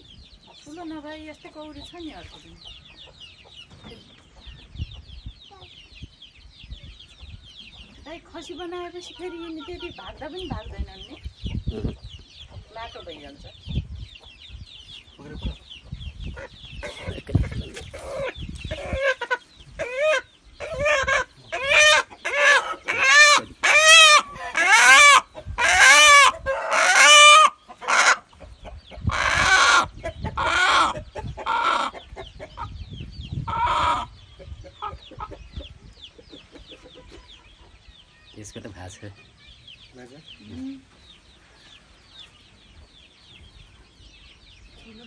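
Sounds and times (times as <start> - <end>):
rooster squawking: 17.9 - 28.2, 29.1 - 31.9.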